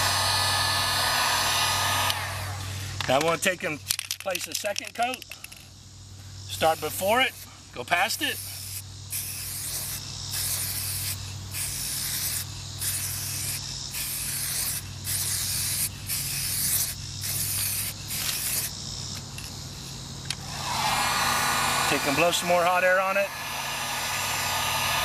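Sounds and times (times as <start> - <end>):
aerosol can spraying: 8.1 - 18.8.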